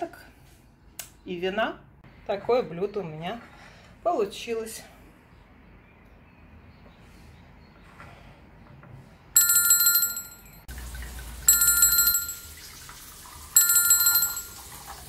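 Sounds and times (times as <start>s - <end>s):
bell ringtone: 9.4s - 10.7s, 11.5s - 12.8s, 13.5s - 15.0s.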